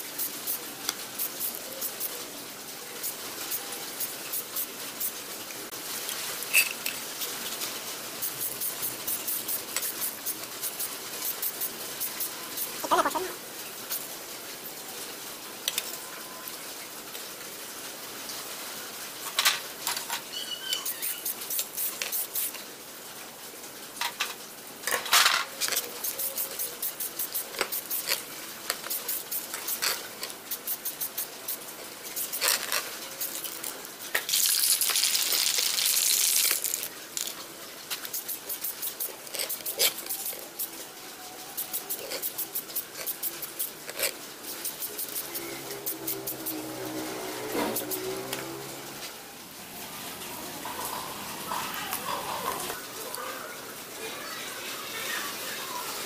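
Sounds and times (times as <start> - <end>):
spray paint can hissing: 0.0 - 2.3, 2.9 - 5.3, 6.4 - 14.2, 20.8 - 22.6, 25.6 - 40.8, 41.5 - 48.6.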